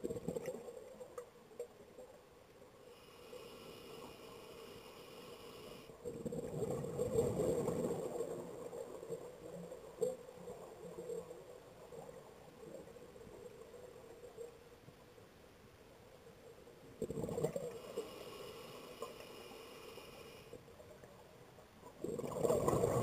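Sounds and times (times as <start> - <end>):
exhaled bubbles underwater: 6.0 - 8.6, 17.0 - 17.7, 22.0 - 23.0.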